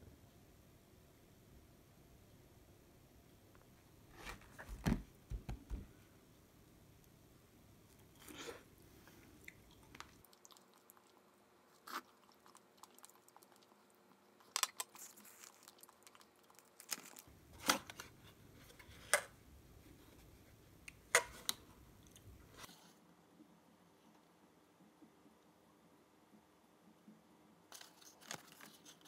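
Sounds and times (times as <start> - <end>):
paper pages rustling: 27.7 - 29.0.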